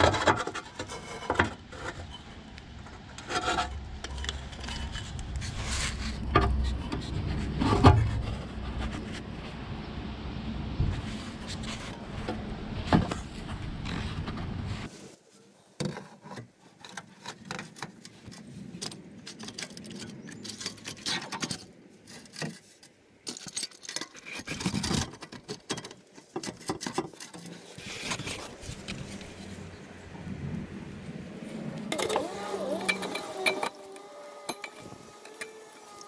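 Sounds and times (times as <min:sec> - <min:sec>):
metal tools clinking on exhaust pipe: 0:31.9 - 0:35.6.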